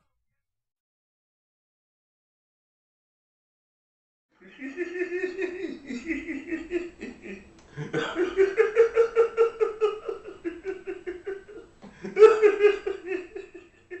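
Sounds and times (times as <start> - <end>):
man laughing hard: 4.4 - 14.0.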